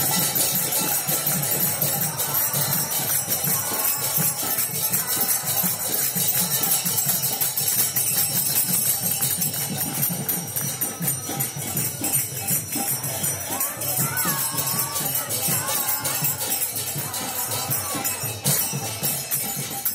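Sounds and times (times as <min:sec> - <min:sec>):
hand cymbals jingling: 0:00.0 - 0:19.9.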